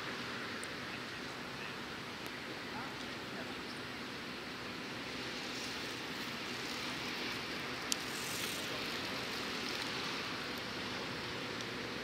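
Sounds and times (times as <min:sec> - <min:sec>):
steady hiss: 0:00.0 - 0:12.0.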